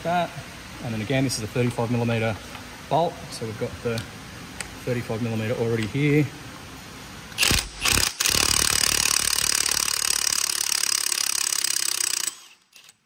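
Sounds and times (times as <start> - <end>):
impact wrench hammering: 7.4 - 12.9.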